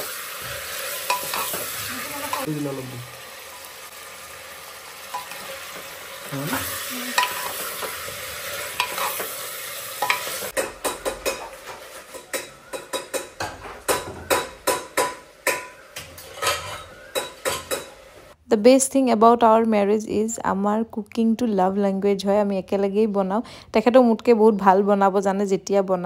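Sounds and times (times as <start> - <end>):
food sizzling in a pot: 0.0 - 18.4
spatula knocking and scraping pot: 1.0 - 2.5, 7.2 - 9.4, 10.0 - 18.0.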